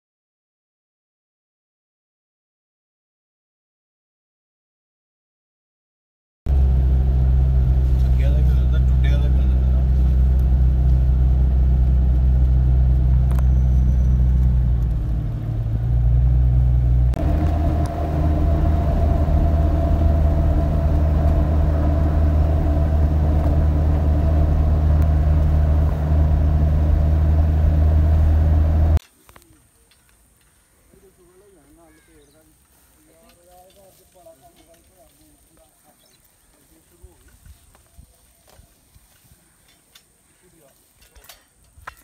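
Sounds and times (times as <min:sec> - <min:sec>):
car engine and road noise: 0:06.5 - 0:29.0.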